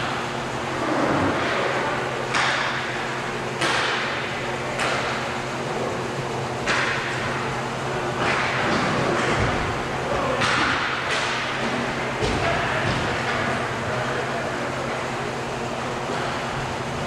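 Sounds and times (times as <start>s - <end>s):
steady hum: 0.0s - 17.0s
hockey stick hitting puck: 3.6s - 4.2s, 4.8s - 5.2s, 6.6s - 7.1s, 8.2s - 13.5s.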